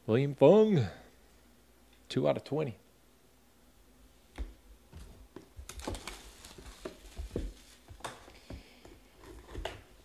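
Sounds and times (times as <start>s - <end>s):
plastic wrap crinkling: 5.4s - 8.4s.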